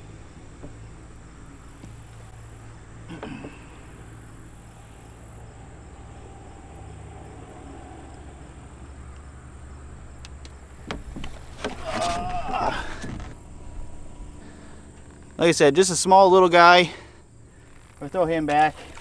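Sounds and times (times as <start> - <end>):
low steady hum: 0.0 - 19.0
insects trilling high: 1.4 - 12.8, 13.4 - 19.0.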